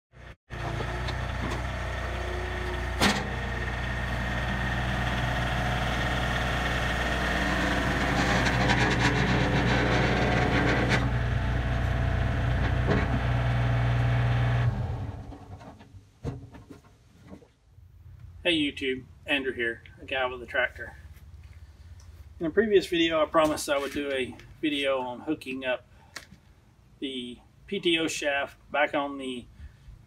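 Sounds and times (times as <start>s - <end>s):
tractor diesel engine: 0.2s - 15.6s.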